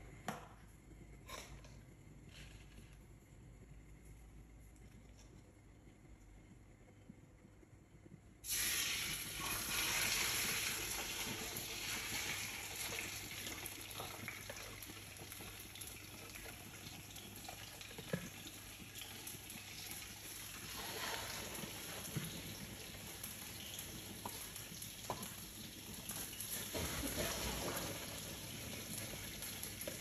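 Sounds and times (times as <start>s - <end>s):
fish sizzling in hot oil: 8.4s - 30.0s.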